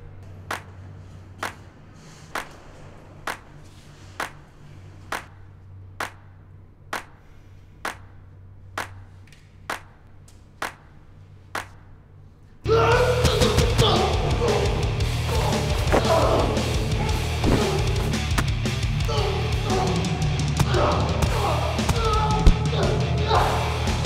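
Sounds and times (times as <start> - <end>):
low steady drone: 12.0 - 24.0.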